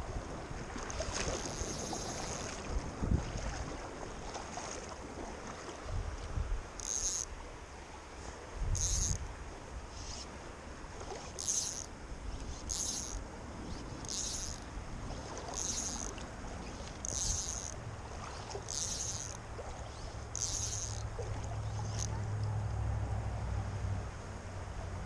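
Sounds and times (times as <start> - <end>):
shallow river rushing: 0.0 - 23.0
fly line hissing through guides: 6.8 - 7.3, 9.9 - 10.3, 11.1 - 22.1.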